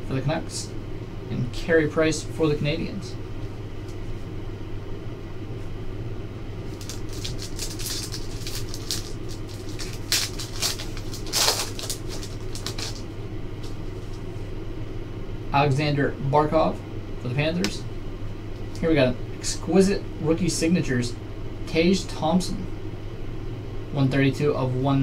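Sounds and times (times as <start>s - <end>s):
steady low hum: 0.0s - 25.0s
foil wrapper crinkling and tearing: 6.7s - 14.2s.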